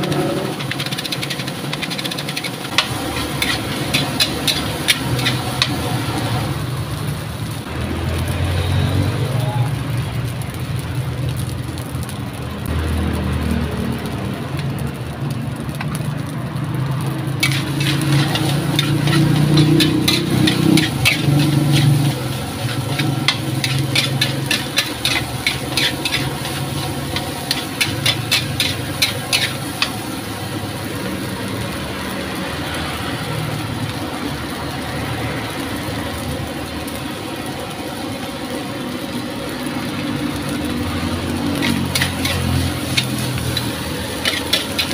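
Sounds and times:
metal spatula clanking on wok: 0:00.0 - 0:05.8, 0:17.4 - 0:30.1, 0:41.6 - 0:44.9.

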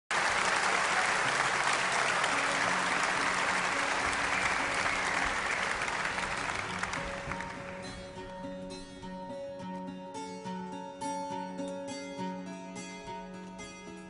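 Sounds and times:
audience applauding: 0:00.1 - 0:08.6.

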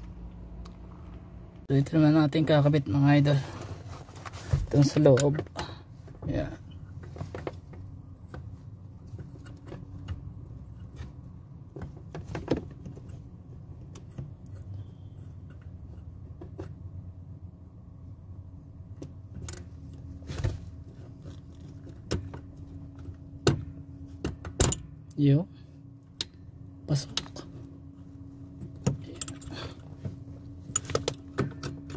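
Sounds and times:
low steady hum: 0:00.0 - 0:31.9
metal parts clicking and knocking: 0:28.8 - 0:29.9, 0:30.7 - 0:31.9.

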